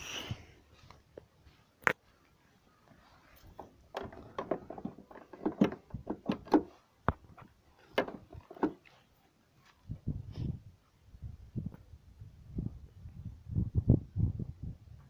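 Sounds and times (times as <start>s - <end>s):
tailgate latch clicks and knocks: 3.9s - 7.2s, 7.9s - 8.8s.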